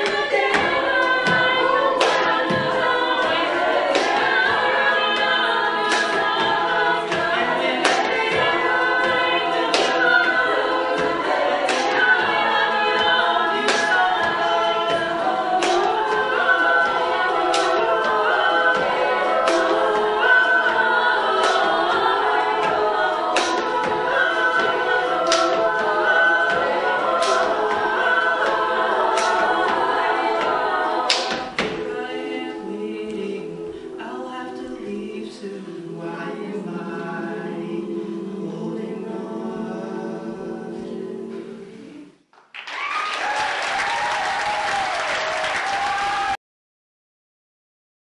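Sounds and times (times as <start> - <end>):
vocal percussion hits: 0.0 - 34.7
a cappella group singing: 0.0 - 42.3
audience applauding and cheering: 42.4 - 46.4.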